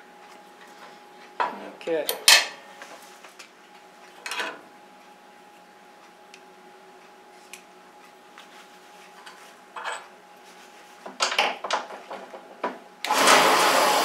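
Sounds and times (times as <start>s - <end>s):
faint steady hum: 0.0s - 13.1s.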